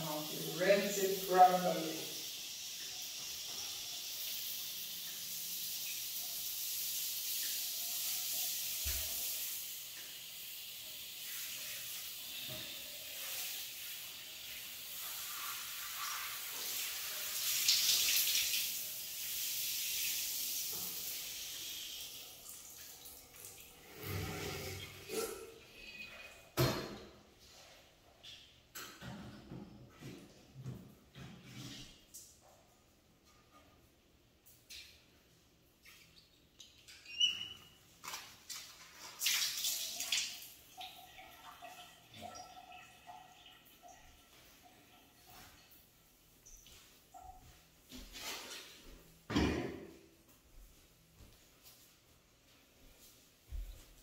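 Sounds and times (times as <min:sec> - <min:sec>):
shower spraying water: 0:00.0 - 0:25.7, 0:37.1 - 0:45.6.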